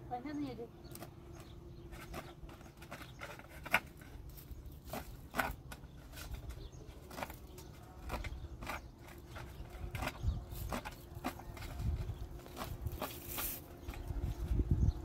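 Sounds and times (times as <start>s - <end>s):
leaves rustling: 11.7s - 14.4s.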